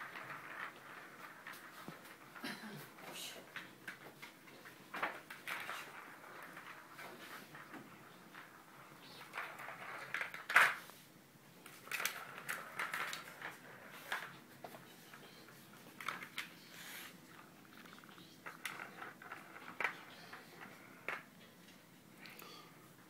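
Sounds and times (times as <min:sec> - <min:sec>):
plastic ball toy clicking and rattling: 0:17.9 - 0:21.2.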